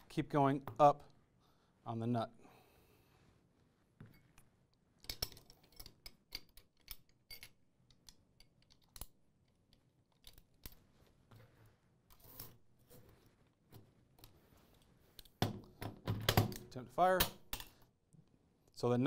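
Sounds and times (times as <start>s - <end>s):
metal parts clicking and scraping: 5.0s - 10.9s.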